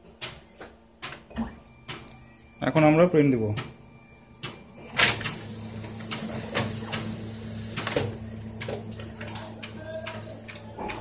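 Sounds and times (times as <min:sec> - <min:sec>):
copier motor hum: 0:00.0 - 0:11.0
copier clicks and clacks: 0:04.4 - 0:11.0.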